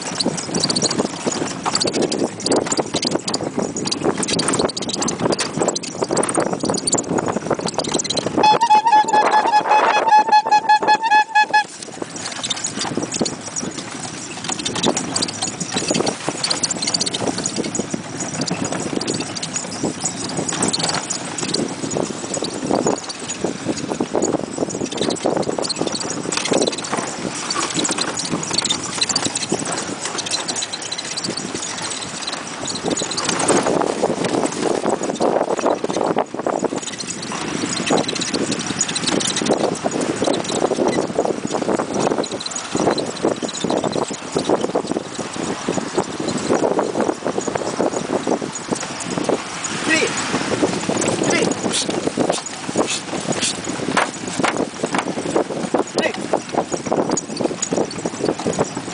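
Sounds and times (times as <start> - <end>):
cart rattling: 0.0 - 58.9
hooves clip-clopping on sand: 0.0 - 58.9
rapidly pulsing high tone: 8.4 - 11.8.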